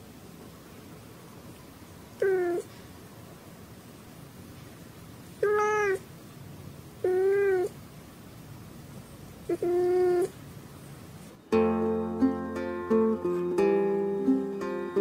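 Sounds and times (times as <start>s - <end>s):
cat meowing: 2.2s - 2.7s, 5.4s - 6.1s, 7.0s - 7.8s, 9.5s - 10.4s.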